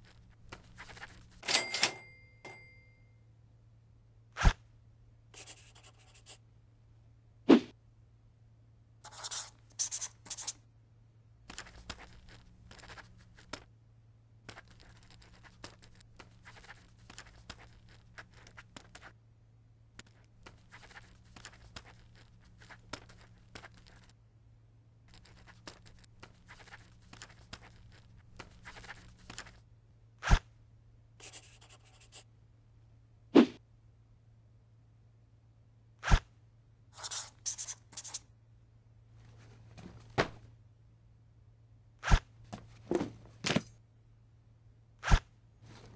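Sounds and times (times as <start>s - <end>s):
faint low hum: 0.0s - 45.9s
pen scratching on paper: 0.6s - 1.3s, 5.4s - 6.4s, 9.1s - 10.6s, 14.6s - 19.1s, 25.2s - 29.5s, 31.2s - 32.2s, 37.0s - 38.2s.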